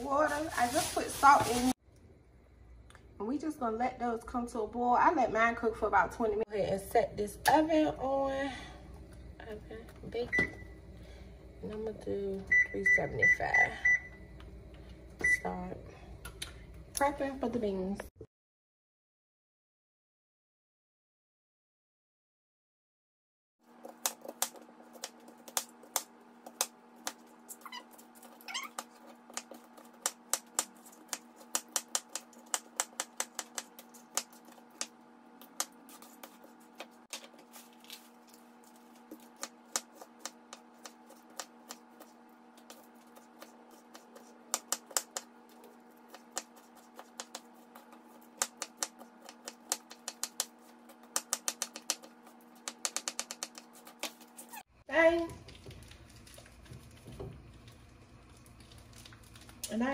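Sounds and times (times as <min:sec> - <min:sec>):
knife chopping on cutting board: 0:46.0 - 0:54.2.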